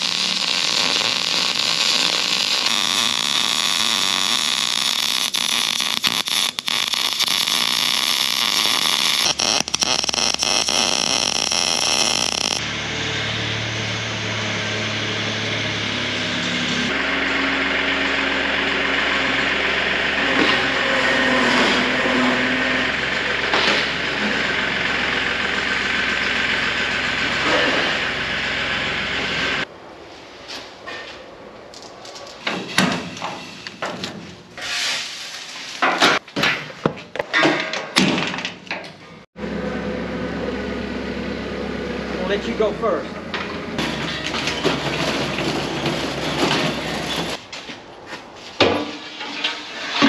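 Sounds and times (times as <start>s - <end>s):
welder arc crackling: 0.0s - 12.6s
small vehicle engine running: 11.1s - 29.7s, 39.4s - 47.4s.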